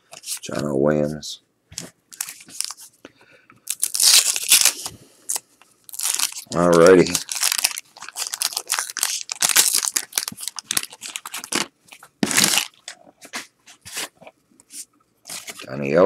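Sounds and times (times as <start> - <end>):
cardboard cards rustling: 1.8 - 3.0, 5.9 - 15.8
wax paper wrapper crinkling: 1.8 - 3.0, 3.7 - 13.0.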